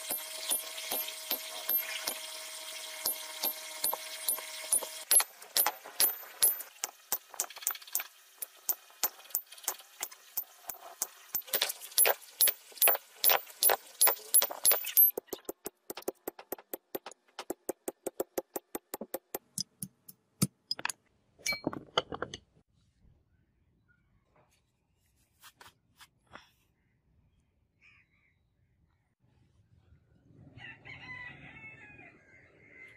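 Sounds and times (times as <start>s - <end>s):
hammer striking iron on anvil: 0.0s - 2.3s, 3.0s - 15.4s.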